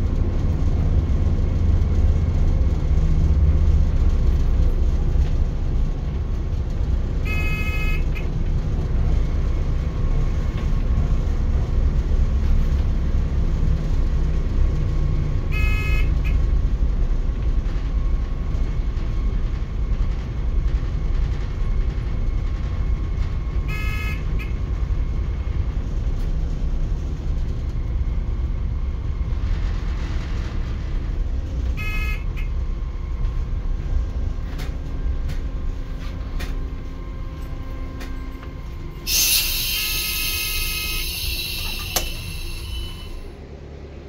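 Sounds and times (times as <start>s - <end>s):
railcar low rumble: 0.0s - 44.0s
short pitched tones: 37.8s - 43.3s
loud hiss: 39.0s - 43.3s
sharp click: 41.6s - 42.8s.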